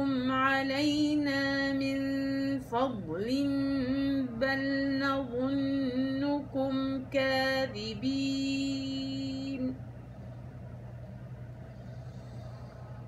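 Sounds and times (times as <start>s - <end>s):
person chanting a recitation: 0.0s - 9.8s
faint low hum: 0.0s - 13.0s.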